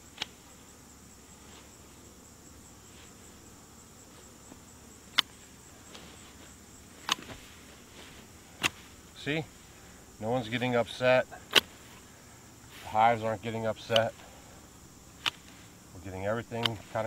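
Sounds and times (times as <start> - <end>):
high insect trill: 0.0 - 17.0
hand shears clipping: 13.8 - 14.2, 15.2 - 15.6, 16.5 - 16.9.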